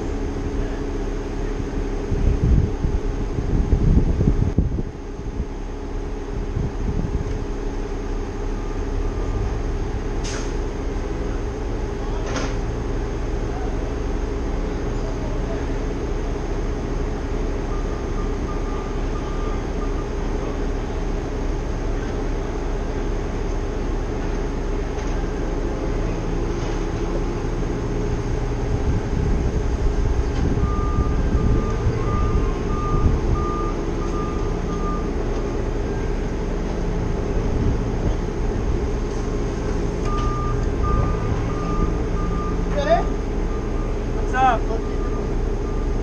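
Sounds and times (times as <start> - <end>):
heavy truck engine running: 0.0 - 46.0
backup alarm beeping: 30.5 - 35.2, 40.0 - 46.0.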